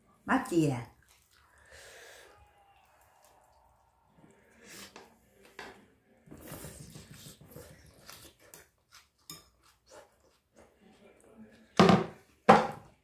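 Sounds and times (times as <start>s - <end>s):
slurping greens: 0.9s - 5.5s, 6.3s - 11.2s
wet chewing and lip smacks: 1.0s - 1.6s.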